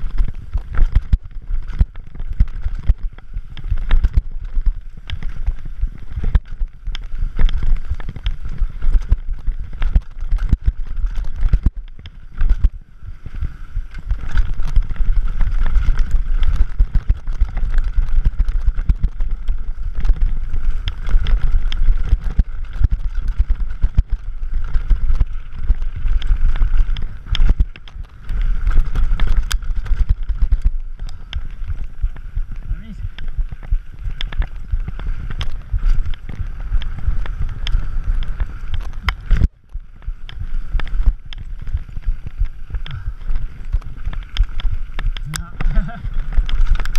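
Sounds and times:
bike rattling and knocking: 0.0s - 46.9s.

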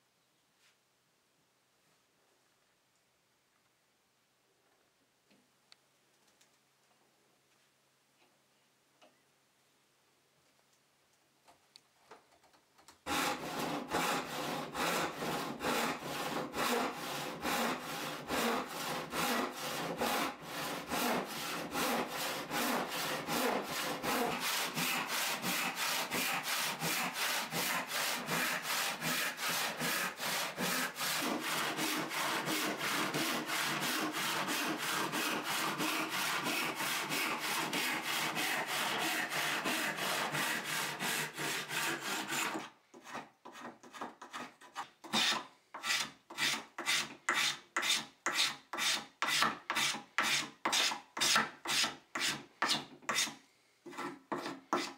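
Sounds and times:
hand saw cutting wood: 13.0s - 54.9s.

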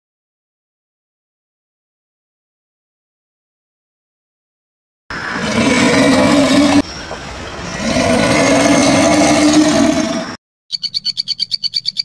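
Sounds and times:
alligator hissing: 5.1s - 10.4s.

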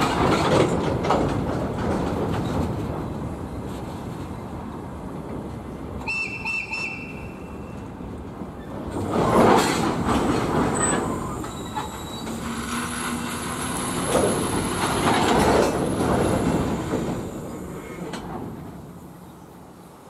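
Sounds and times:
train wheels clattering: 0.0s - 4.0s, 8.9s - 18.7s
high-pitched wheel squeal: 10.8s - 14.0s.

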